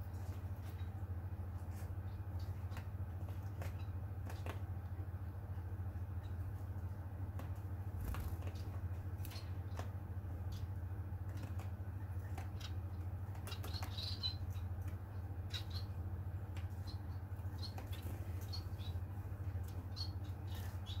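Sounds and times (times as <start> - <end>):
finches chirping: 5.8 - 6.6, 8.0 - 11.1, 11.8 - 21.0.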